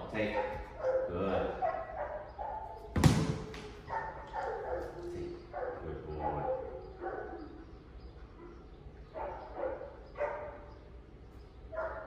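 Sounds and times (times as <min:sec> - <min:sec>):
dog barking: 0:00.2 - 0:02.9, 0:03.9 - 0:07.6, 0:08.4 - 0:10.8, 0:11.7 - 0:12.0.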